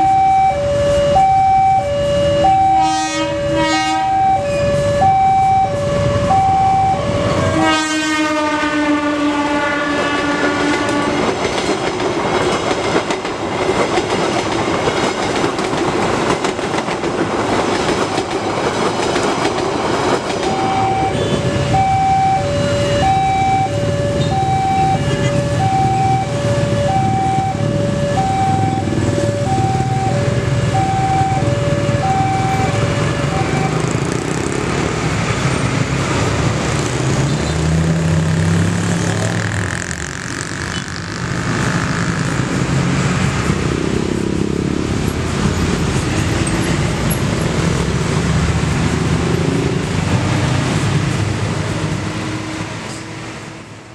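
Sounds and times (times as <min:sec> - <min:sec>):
level crossing two-tone alarm: 0:00.0 - 0:07.6, 0:20.4 - 0:33.8
road traffic passing: 0:00.0 - 0:53.9.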